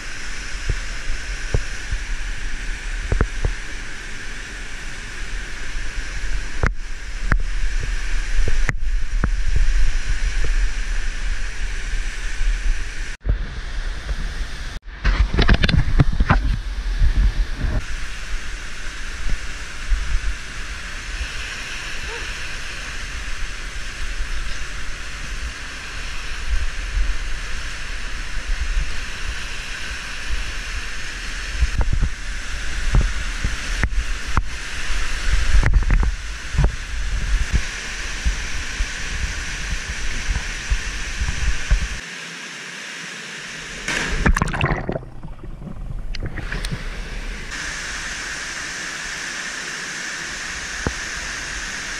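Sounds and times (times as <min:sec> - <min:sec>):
waterfall rushing into pool: 0:00.0 - 0:14.8, 0:15.4 - 0:51.9
low rumbles: 0:43.9 - 0:47.6
underwater gurgling: 0:43.9 - 0:47.6.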